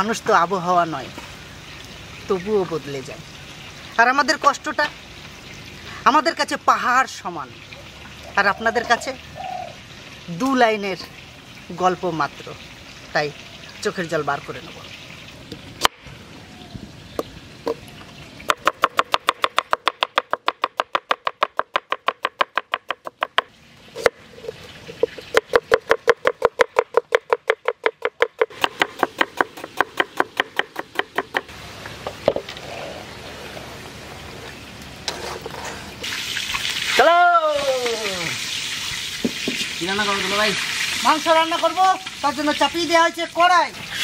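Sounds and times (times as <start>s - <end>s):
knife chopping on wooden board: 18.5s - 24.1s, 25.1s - 31.5s.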